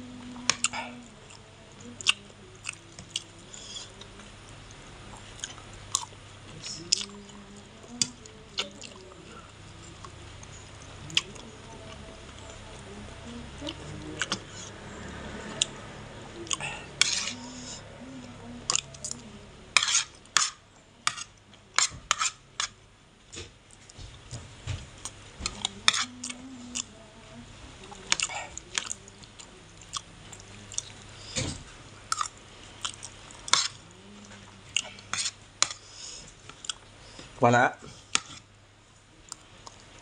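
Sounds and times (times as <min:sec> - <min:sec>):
chewing: 0:00.3 - 0:24.0, 0:24.9 - 0:27.0, 0:27.8 - 0:38.5, 0:39.2 - 0:40.0
metal spoon scraping on plate: 0:17.0 - 0:17.8, 0:19.8 - 0:22.8, 0:25.8 - 0:26.1, 0:33.5 - 0:33.8, 0:35.0 - 0:35.8.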